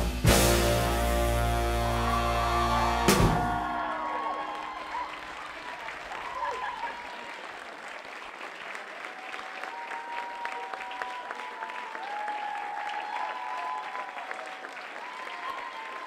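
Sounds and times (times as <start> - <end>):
high calls from audience: 1.6 - 7.7
audience clapping: 1.7 - 16.0.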